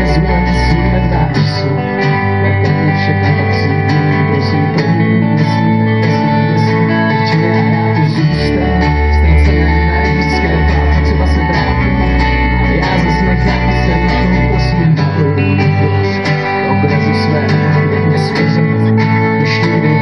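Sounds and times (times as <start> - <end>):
folk-pop band playing: 0.0 - 20.0
upright double bass: 0.0 - 20.0.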